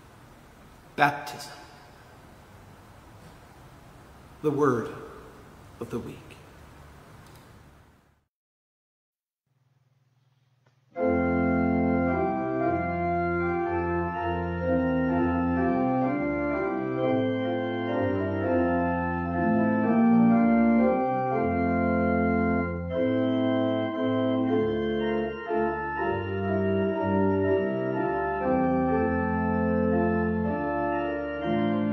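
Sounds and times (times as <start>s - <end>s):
organ playing slow chords: 10.9s - 31.9s.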